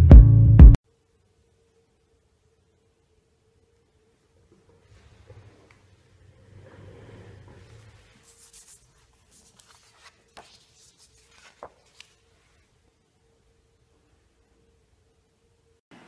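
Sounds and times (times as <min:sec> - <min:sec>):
faint steady hum: 0:00.8 - 0:16.0
paper rustling on desk: 0:07.5 - 0:12.8.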